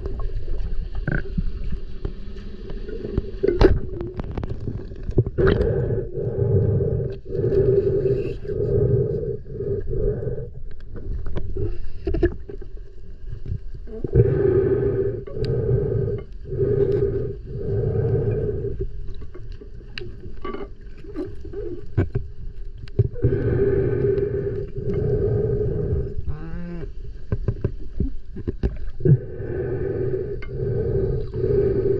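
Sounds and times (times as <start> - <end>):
underwater mechanical drone: 0.0 - 31.9.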